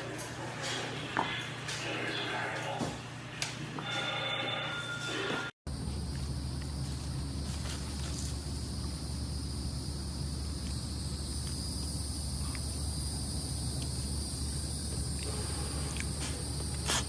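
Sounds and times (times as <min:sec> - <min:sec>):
insects chirring: 0:05.7 - 0:17.0.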